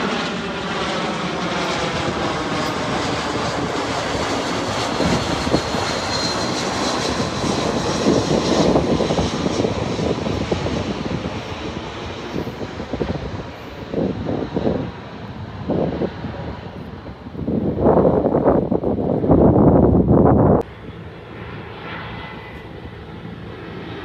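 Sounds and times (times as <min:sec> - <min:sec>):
jet airliner roar passing overhead: 0:00.0 - 0:24.0.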